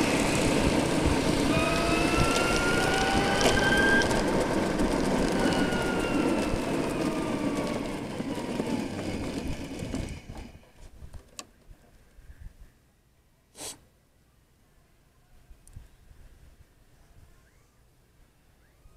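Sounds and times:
electric motor whine: 0.0s - 10.6s
wind and tyre noise: 0.0s - 12.7s
brief hiss: 13.5s - 13.9s.

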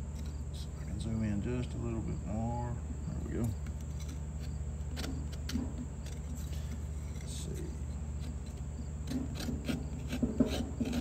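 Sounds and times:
small saw rasping through wood: 3.8s - 11.0s.

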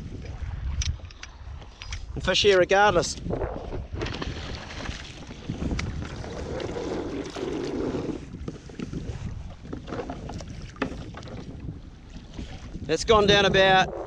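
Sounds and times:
wind buffeting microphone: 0.0s - 14.0s
rope rasping over kayak side: 5.6s - 11.4s.

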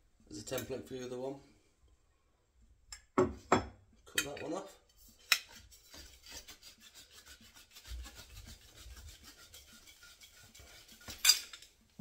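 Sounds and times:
pipe cutter rasping on pipe: 5.1s - 11.3s.

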